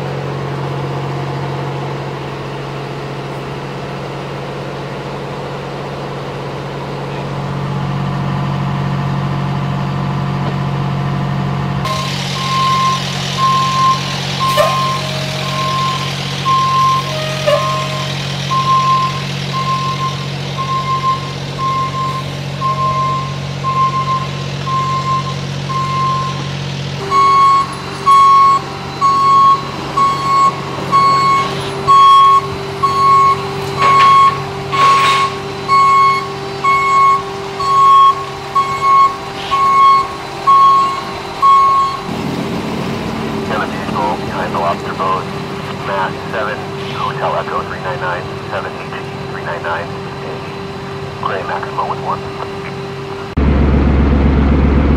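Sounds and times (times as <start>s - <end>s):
diesel engine idling: 0.0s - 54.9s
truck backup alarm beeping: 11.8s - 54.9s.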